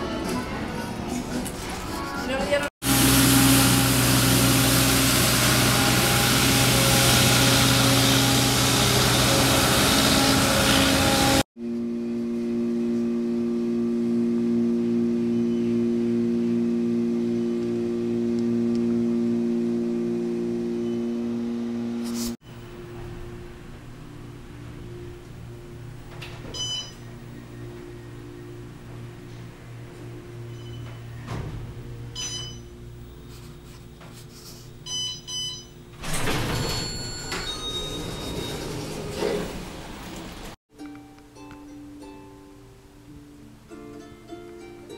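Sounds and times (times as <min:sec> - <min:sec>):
elevator hum: 0:02.8 - 0:11.4, 0:12.0 - 0:34.1, 0:34.8 - 0:40.6
street sweeper rushing: 0:02.8 - 0:11.4
electronic elevator chime: 0:20.4 - 0:21.5, 0:24.7 - 0:29.3, 0:30.1 - 0:31.2, 0:32.1 - 0:32.9, 0:34.8 - 0:39.1
elevator doors sliding open: 0:35.9 - 0:40.6.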